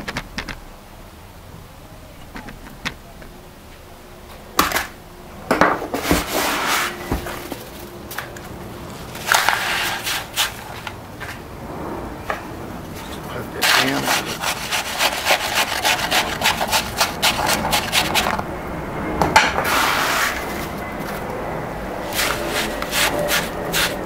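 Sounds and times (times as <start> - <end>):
concrete mix scraped into mould: 9.1 - 10.8, 13.6 - 18.4, 19.6 - 21.2, 22.0 - 24.0.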